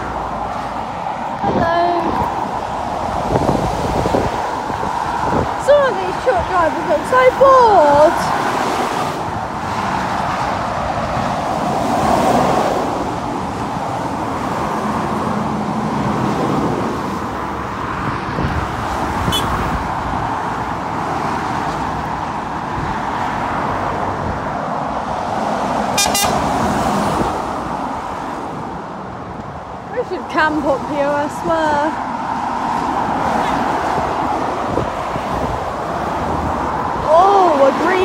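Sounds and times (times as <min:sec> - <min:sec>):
traffic tyre roar: 0:00.0 - 0:38.0.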